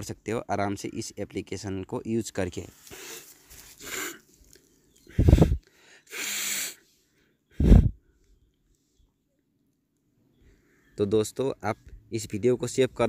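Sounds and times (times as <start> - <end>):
person exhaling: 5.1 - 6.8, 7.6 - 8.0
breath puffs on microphone: 5.1 - 8.1.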